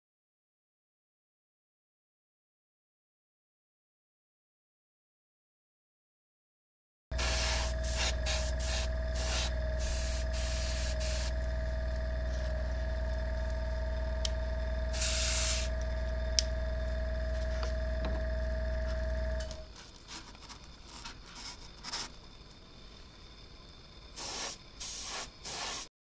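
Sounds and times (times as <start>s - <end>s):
small electric motor humming: 7.1s - 19.7s
airbrush spraying in hissing bursts: 7.2s - 11.3s, 14.9s - 15.7s, 24.2s - 25.9s.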